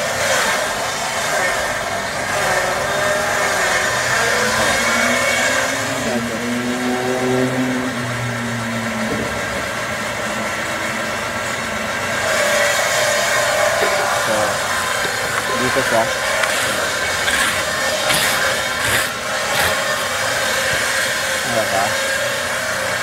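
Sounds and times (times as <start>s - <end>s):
motor running steadily: 8.8s - 23.0s.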